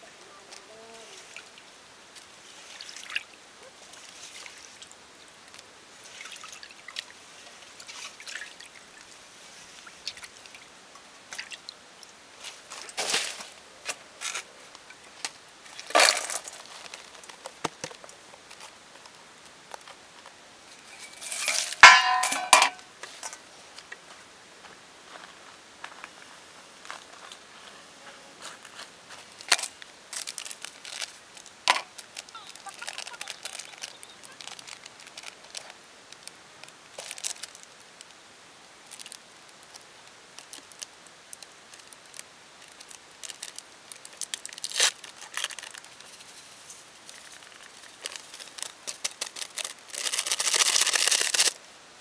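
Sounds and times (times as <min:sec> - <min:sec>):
water splashes and drips: 0:01.2 - 0:13.6, 0:14.9 - 0:19.9
metal bowl clattering and clanging: 0:20.9 - 0:22.8.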